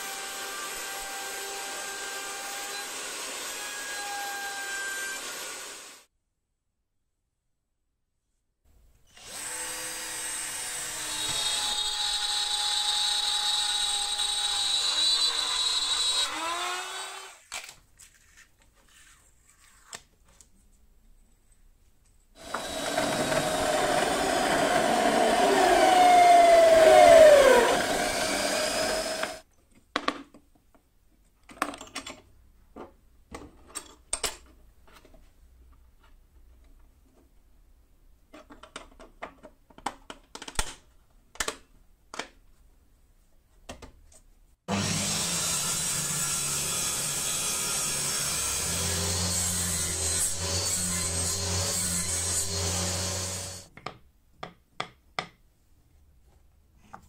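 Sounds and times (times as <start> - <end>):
drill press boring into plastic: 22.4 - 29.4
router cutting plastic: 22.4 - 29.4, 44.7 - 53.7
clicks and knocks of parts handled: 29.6 - 37.3, 38.3 - 42.4.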